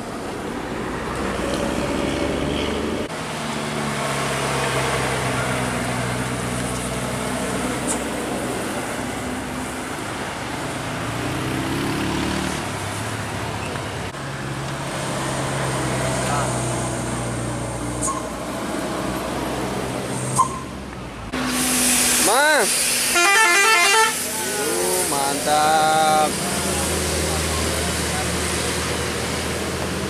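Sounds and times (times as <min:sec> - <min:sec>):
buses driving past: 0:00.0 - 0:30.0
engine revving up: 0:10.8 - 0:13.0.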